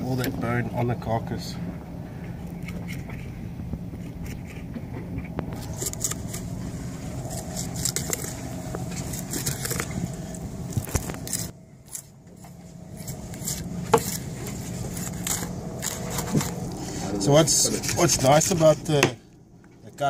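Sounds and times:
steady low hum: 0.0 - 20.0
knife scraping along fish bone: 4.0 - 4.9, 5.5 - 17.1.

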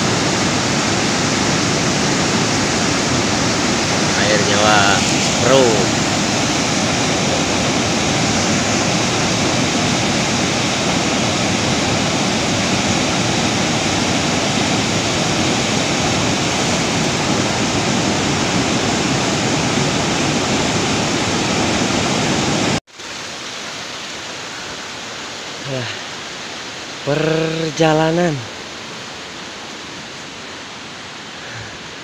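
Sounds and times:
steady hiss: 0.0 - 11.2, 23.0 - 32.0
river rushing over rocks: 0.0 - 32.0.

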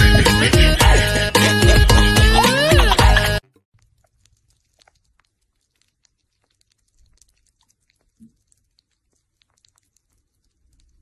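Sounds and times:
small animals licking and chewing: 3.7 - 11.0.

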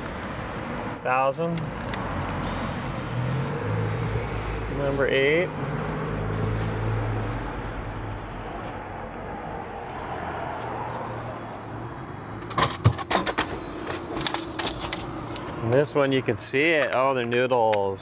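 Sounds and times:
vending machine humming: 12.1 - 15.5.

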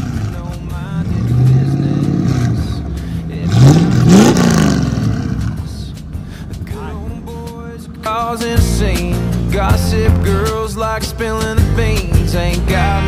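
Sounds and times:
car engine revving: 0.0 - 13.0.

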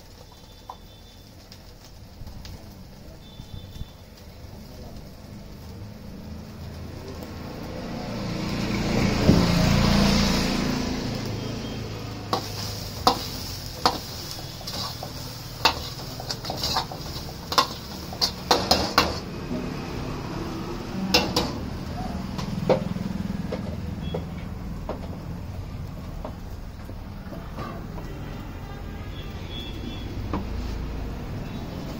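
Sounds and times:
rice sizzling in a pan: 0.0 - 31.9
ladle clanking and scraping wok: 11.4 - 25.4, 26.0 - 28.7.

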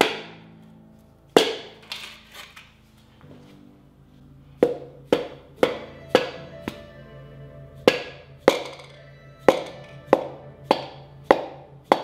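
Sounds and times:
sustained low music notes: 0.0 - 12.0
sharp percussive hits: 7.8 - 12.0.

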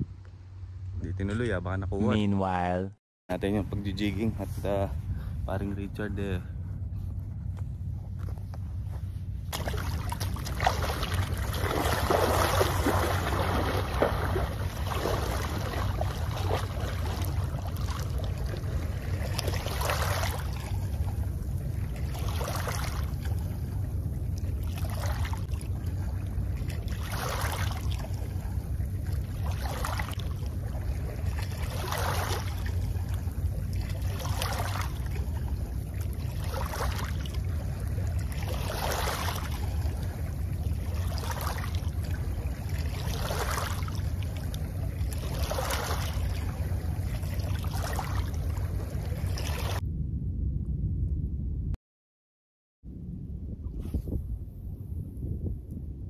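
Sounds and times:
low rumble: 0.0 - 51.8, 52.9 - 56.0
waves lapping over stones: 9.5 - 21.2, 21.9 - 23.4, 24.4 - 28.5, 29.1 - 49.8.

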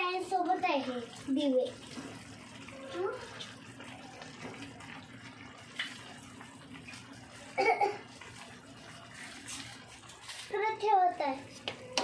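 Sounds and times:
voice: 0.0 - 1.8, 10.5 - 11.5
gravy sizzling in a frying pan: 0.0 - 12.0.

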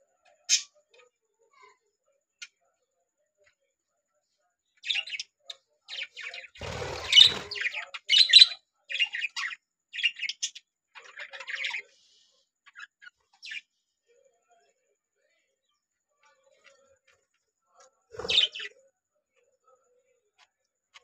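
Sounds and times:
budgerigars chirping: 6.4 - 7.7.

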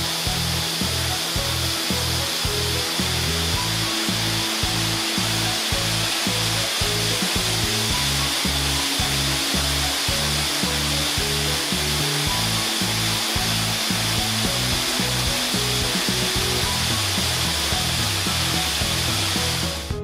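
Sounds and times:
background music with bass: 0.0 - 20.0
small waterfall rushing: 0.0 - 20.0.

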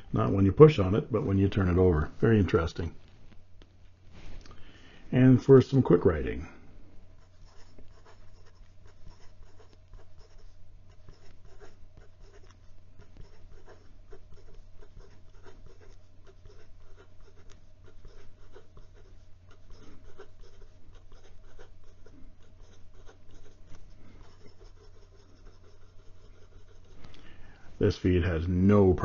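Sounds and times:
low steady hum: 0.0 - 29.0
fountain pen scratching on paper: 7.2 - 27.0.

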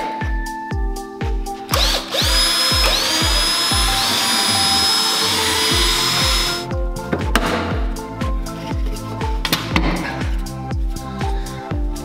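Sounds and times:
background music with low beat: 0.0 - 12.0
cordless drill motor whine: 1.7 - 6.6.

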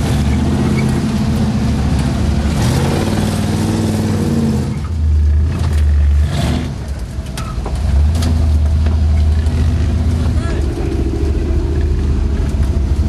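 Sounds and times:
engine revving: 0.0 - 7.0.

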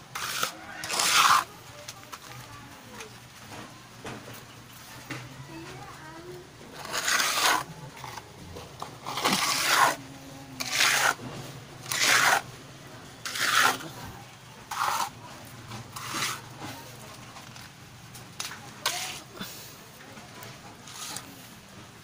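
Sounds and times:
hand float scraping cement: 0.1 - 2.3, 6.7 - 10.0, 10.6 - 12.5, 13.2 - 16.9, 18.4 - 19.7, 20.8 - 21.4.

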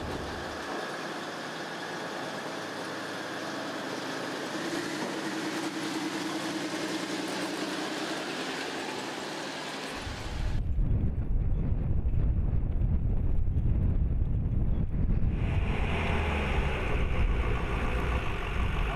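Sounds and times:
clatter of tracks on metal deck: 0.0 - 3.1
tracked vehicle engine running: 0.0 - 10.6, 14.2 - 18.9
low wind rumble on microphone: 10.0 - 18.9
droning tone: 15.2 - 18.9.

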